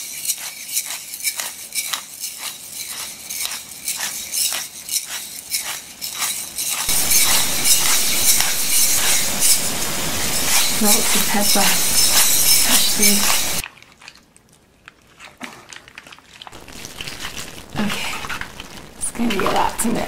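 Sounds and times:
pepper mill grinding: 0:00.0 - 0:13.6
loud steady noise: 0:06.9 - 0:13.6, 0:16.6 - 0:20.0.

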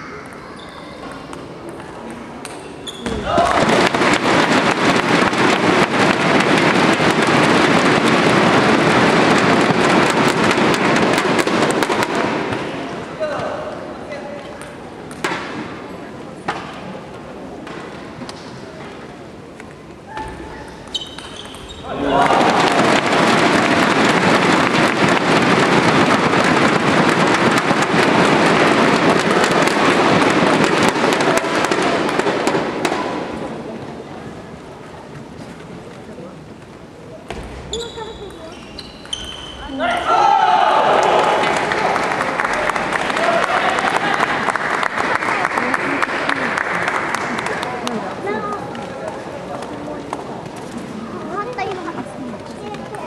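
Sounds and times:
crowd clattering thundersticks: 0:03.1 - 0:13.4, 0:20.7 - 0:34.0, 0:39.0 - 0:53.0.

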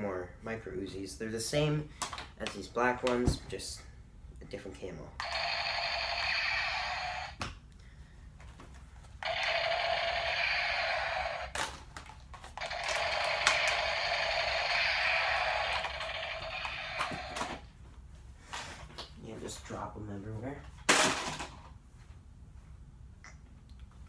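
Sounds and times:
toy gun firing sound effect: 0:05.2 - 0:07.4, 0:09.2 - 0:11.7, 0:12.6 - 0:17.6.

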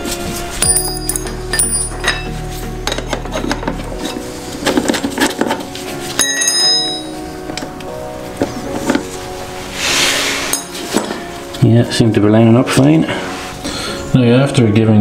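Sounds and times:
chiming bell-like music: 0:00.5 - 0:03.0, 0:06.2 - 0:07.6.

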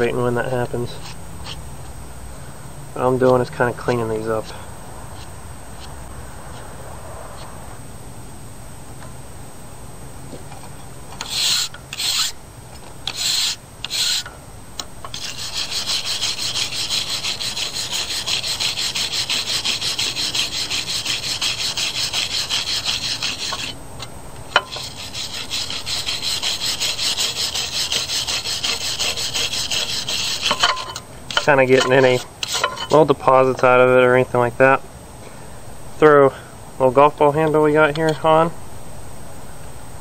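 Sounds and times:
brush scrubbing a steel file: 0:11.2 - 0:12.4, 0:13.1 - 0:14.3, 0:15.1 - 0:23.8, 0:24.6 - 0:33.0.

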